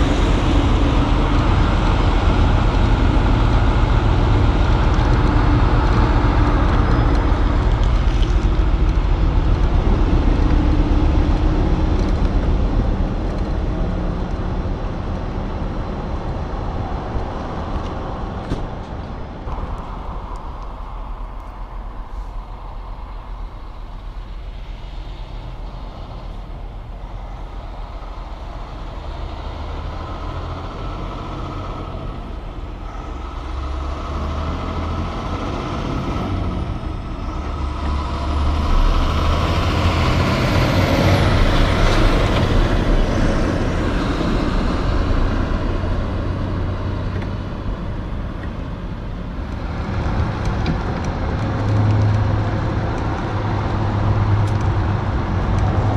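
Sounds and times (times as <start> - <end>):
tyre and road noise: 0.0 - 55.9.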